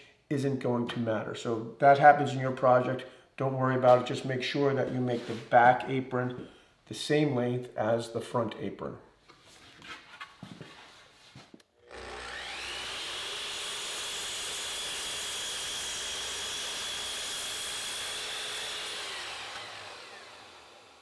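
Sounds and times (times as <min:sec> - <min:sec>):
miter saw cutting wood: 0:11.8 - 0:21.0.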